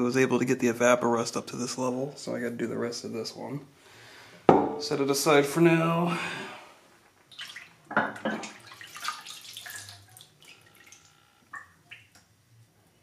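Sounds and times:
liquid streaming and dripping: 7.3 - 12.8
hand sloshing water in bucket: 8.4 - 10.9.

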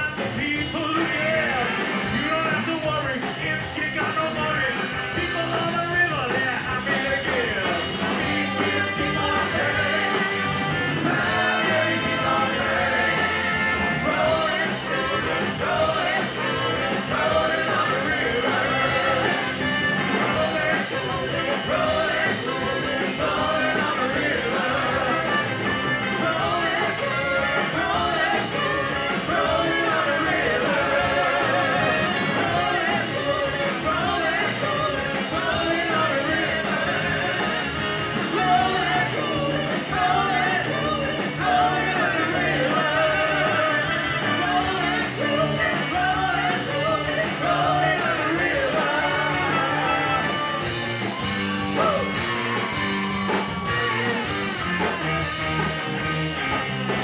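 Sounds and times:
people singing: 0.0 - 54.4
live rock band playing: 0.0 - 57.0
saxophone: 8.3 - 15.6, 17.8 - 21.6, 24.0 - 32.6, 49.0 - 57.0.

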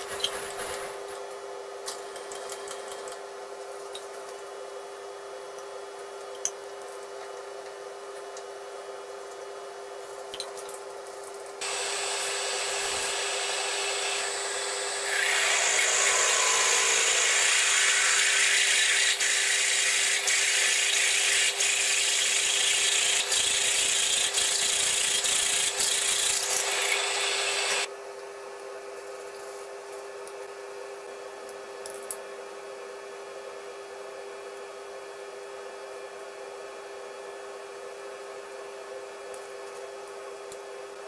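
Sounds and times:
steady motor hum: 11.3 - 28.0
drill cutting metal hissing: 11.6 - 27.9.

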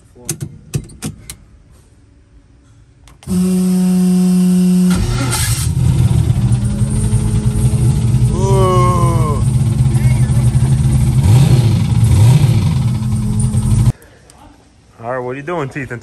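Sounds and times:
engine running rough: 3.3 - 13.9
starter motor cranking: 4.8 - 13.9.

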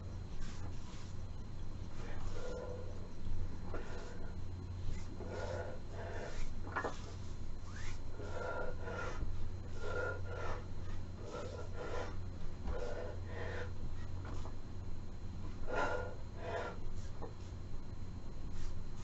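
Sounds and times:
steady low hum: 0.0 - 19.0
person breathing hard: 1.9 - 14.5, 15.5 - 17.2.

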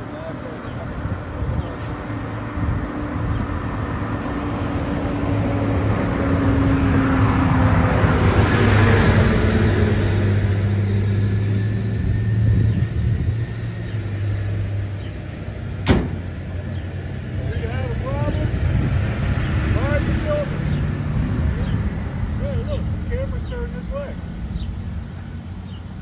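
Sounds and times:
low engine hum: 0.0 - 26.0
vehicle driving past: 1.9 - 26.0.

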